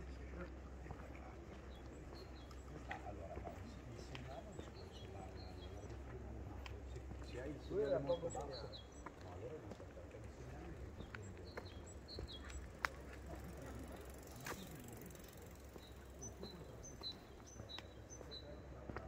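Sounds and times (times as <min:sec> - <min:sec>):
small bird chirping: 0:10.9 - 0:18.7.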